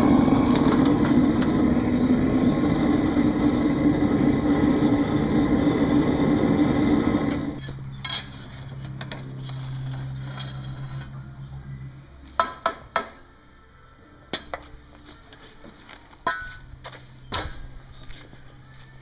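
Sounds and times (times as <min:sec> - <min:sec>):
low steady hum: 0:00.0 - 0:19.0
metal clanks and clinks: 0:07.6 - 0:11.1.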